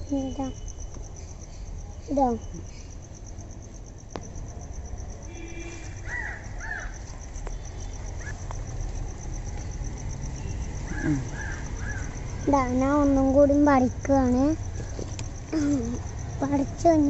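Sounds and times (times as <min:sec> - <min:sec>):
high-pitched insect trill: 0:00.0 - 0:17.0
crow cawing: 0:05.6 - 0:07.0, 0:10.9 - 0:12.2.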